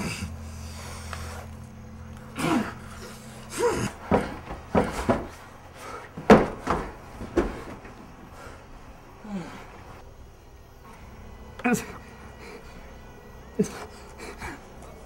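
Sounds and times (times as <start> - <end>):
sharp knocks and thumps: 3.7 - 5.4, 6.1 - 8.3.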